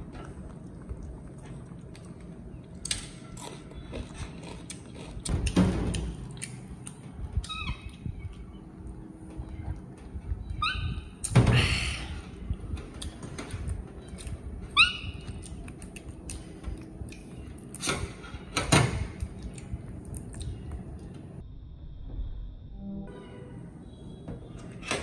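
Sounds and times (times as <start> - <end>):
baby monkey squeaking: 7.4 - 8.3, 10.4 - 11.1, 14.8 - 15.2.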